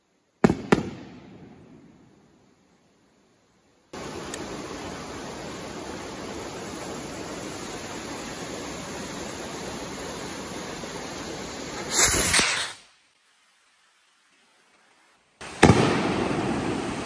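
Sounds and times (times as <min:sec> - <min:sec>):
fuse hissing: 0:03.9 - 0:12.8
firework rocket whoosh: 0:04.0 - 0:12.9.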